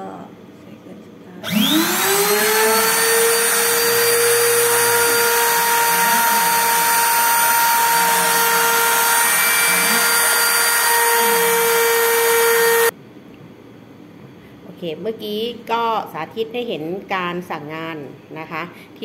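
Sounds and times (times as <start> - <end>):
spindle motor high whine: 1.4 - 12.9
stepper motors whirring: 1.4 - 12.9.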